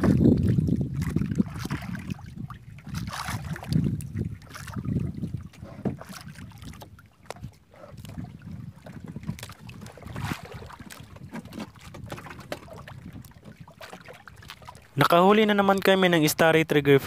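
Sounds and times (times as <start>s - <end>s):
water lapping against a boat: 0.0s - 16.3s
knocks and clicks of line hauling: 10.8s - 14.6s.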